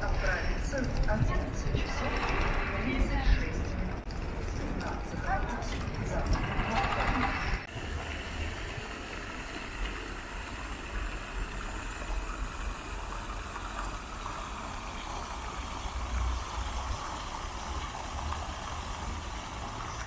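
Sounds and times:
running vehicle rumble and hiss: 7.7 - 20.0.

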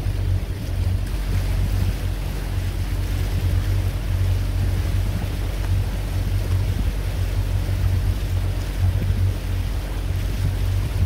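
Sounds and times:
boat motor humming: 0.0 - 11.0
water washing: 0.0 - 11.0
wind on microphone: 0.0 - 11.0.

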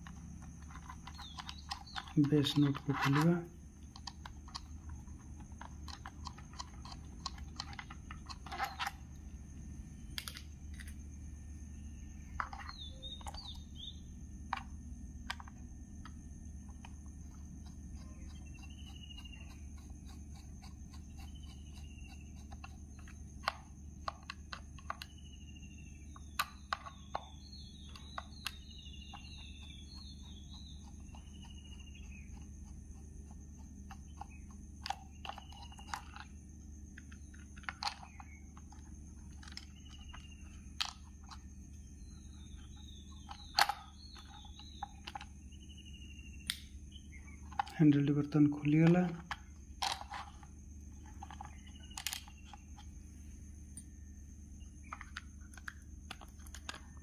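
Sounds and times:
plastic parts clicking: 0.0 - 9.0, 10.1 - 11.0, 22.5 - 25.1, 33.9 - 36.3, 37.0 - 41.4, 43.2 - 45.3, 47.4 - 47.9, 48.8 - 52.9, 54.8 - 57.0.

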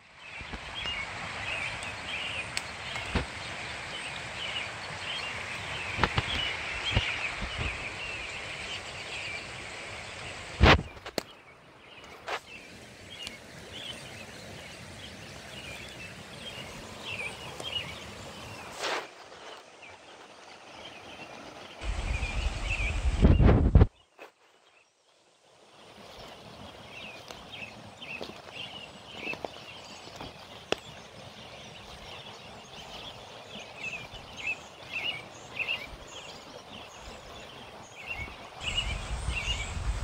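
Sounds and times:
creek running: 0.0 - 40.0
birds calling and twittering: 0.1 - 25.0, 25.7 - 40.0
loud low rumble: 21.8 - 23.8.

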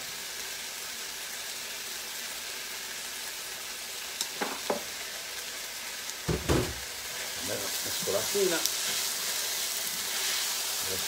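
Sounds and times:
vegetables sizzling in a pan: 0.0 - 11.0
knocks on a pan: 4.4 - 4.9, 6.3 - 6.8.

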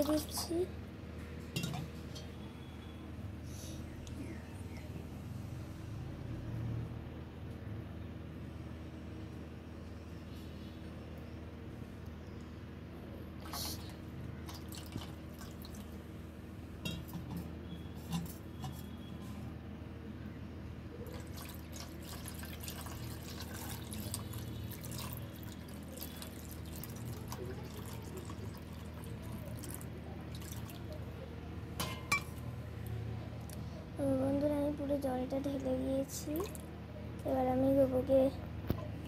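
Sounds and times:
water splashing and trickling: 14.4 - 16.0, 21.0 - 31.0.

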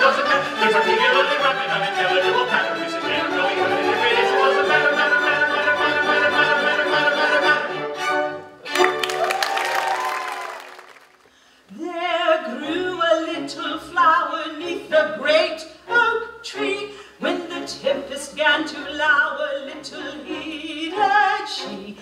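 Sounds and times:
singers with orchestra: 0.0 - 9.0, 11.6 - 22.0
woman singing: 11.7 - 22.0.

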